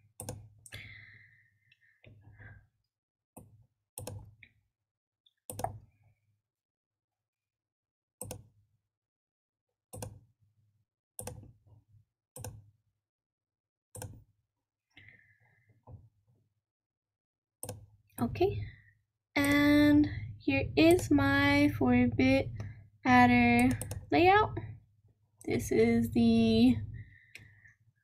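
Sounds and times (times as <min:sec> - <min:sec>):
computer mouse clicks: 0:05.5 - 0:05.8, 0:08.2 - 0:08.4, 0:12.4 - 0:12.6, 0:14.0 - 0:14.2, 0:23.6 - 0:24.1.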